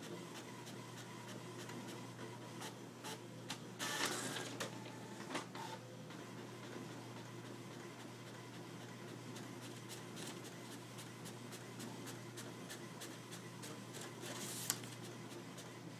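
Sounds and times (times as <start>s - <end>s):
inkjet printer printing: 0.0s - 15.9s
paper rustling: 14.0s - 15.0s.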